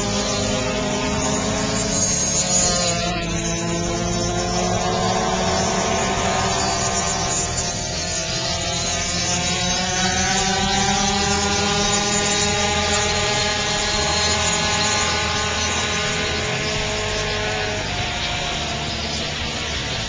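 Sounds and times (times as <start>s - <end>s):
dirt bike engines running: 0.0s - 20.0s.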